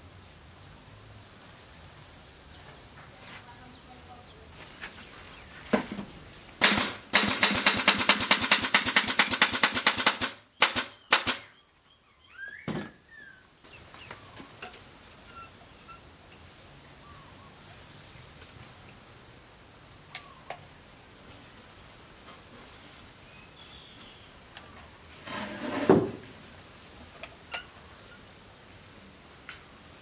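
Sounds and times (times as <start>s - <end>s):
pneumatic nail gun firing: 6.6s - 11.5s.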